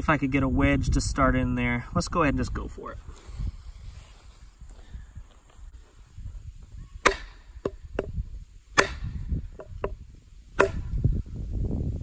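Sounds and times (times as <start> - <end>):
sharp strikes: 7.0 - 8.1, 8.7 - 9.2, 10.6 - 10.9
wooden knocks: 9.6 - 10.0.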